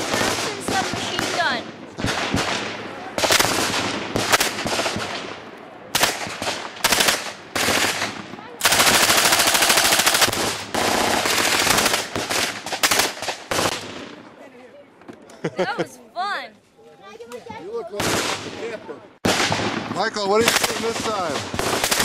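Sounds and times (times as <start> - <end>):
submachine gun firing bursts: 0.0 - 5.3, 6.0 - 14.0, 20.4 - 22.0.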